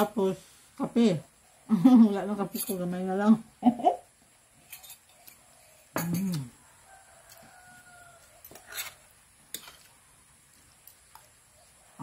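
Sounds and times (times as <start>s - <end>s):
woman humming: 6.0s - 6.6s
distant rooster crowing: 6.6s - 9.1s.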